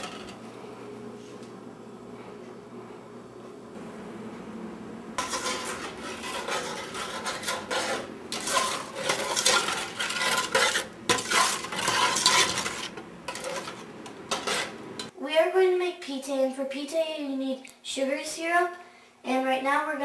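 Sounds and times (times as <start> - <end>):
metal spoon scraping steel pot: 5.2 - 15.1.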